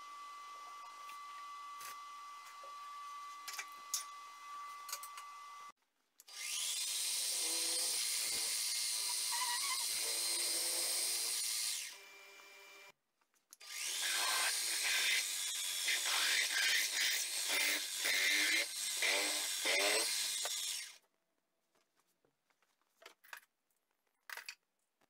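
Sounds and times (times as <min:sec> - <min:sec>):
drilling machine drilling steel: 0:13.7 - 0:21.0.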